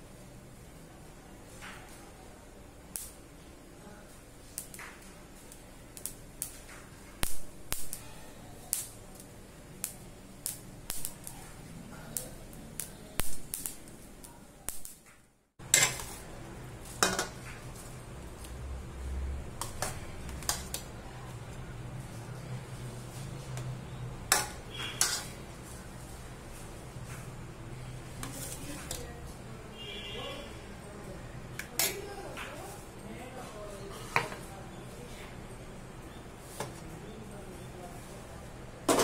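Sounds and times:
seeds popping in hot oil: 0:02.9 - 0:03.2, 0:04.4 - 0:21.9, 0:23.2 - 0:30.2, 0:31.4 - 0:32.6
metal spoon scraping a pan: 0:15.6 - 0:16.3, 0:16.9 - 0:17.4, 0:24.3 - 0:25.5, 0:28.2 - 0:29.0.

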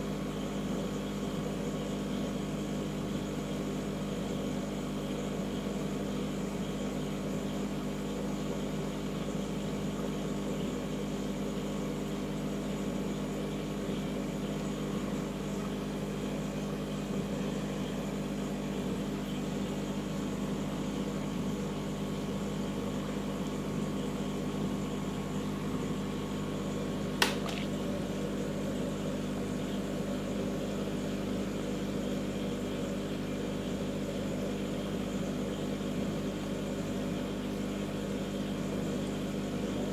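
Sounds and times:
aquarium pumps humming: 0:00.0 - 0:39.9
sharp click: 0:27.2 - 0:27.8.

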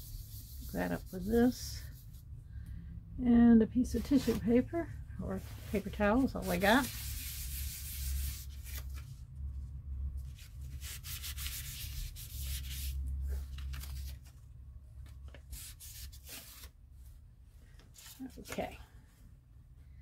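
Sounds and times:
paper rubbing on paper: 0:00.0 - 0:02.2, 0:05.7 - 0:08.8, 0:10.4 - 0:13.4.

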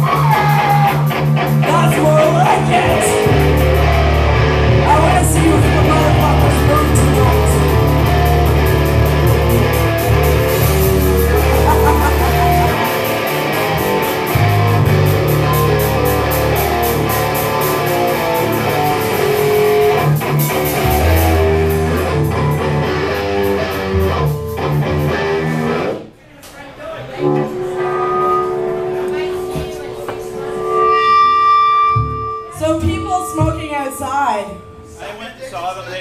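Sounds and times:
drums with fast cymbal beat: 0:00.0 - 0:25.5
distorted electric guitar riff: 0:00.0 - 0:26.0, 0:27.1 - 0:35.1.

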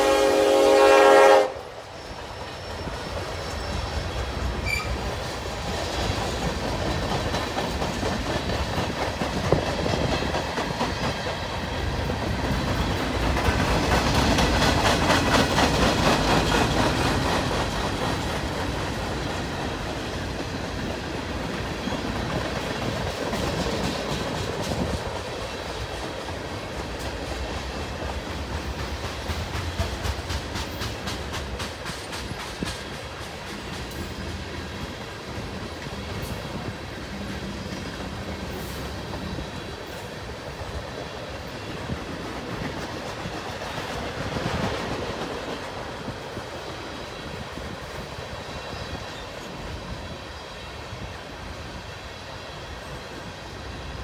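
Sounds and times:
freight train rumbling past: 0:00.0 - 0:54.0
wheels clacking over rails: 0:03.0 - 0:34.4.

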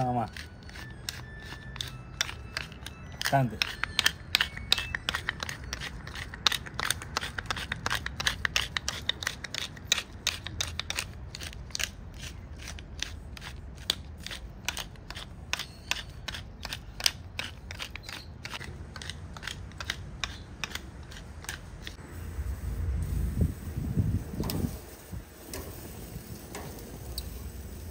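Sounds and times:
low rumble: 0:22.0 - 0:25.3.

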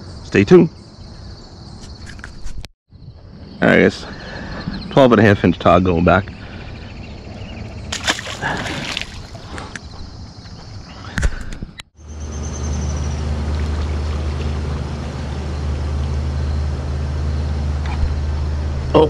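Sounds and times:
low engine hum: 0:12.0 - 0:19.0.

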